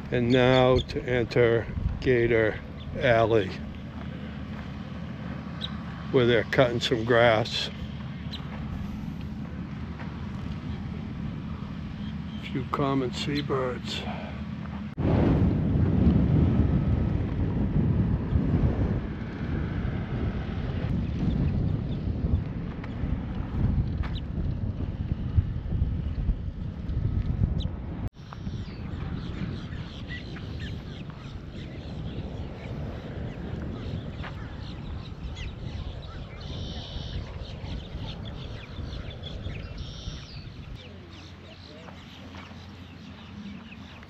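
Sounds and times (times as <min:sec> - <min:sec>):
birds chirping: 0:00.0 - 0:14.9, 0:27.6 - 0:44.0
wind buffeting microphone: 0:00.0 - 0:44.0
buzzy bird calls: 0:00.1 - 0:01.6, 0:05.5 - 0:09.1, 0:28.4 - 0:44.0.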